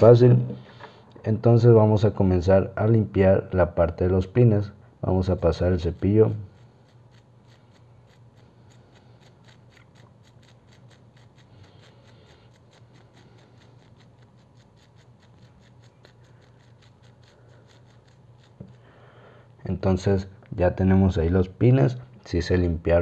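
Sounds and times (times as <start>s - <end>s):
toothbrush scrubbing metal pins: 5.2s - 18.9s.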